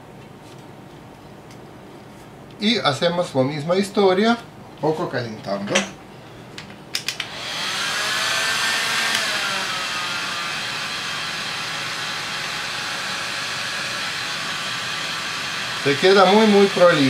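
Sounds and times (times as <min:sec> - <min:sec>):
heat gun blowing: 0:07.2 - 0:17.0.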